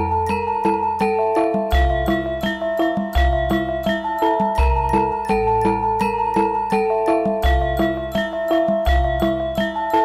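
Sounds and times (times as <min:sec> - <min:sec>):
bell-like melody: 0:00.0 - 0:10.0.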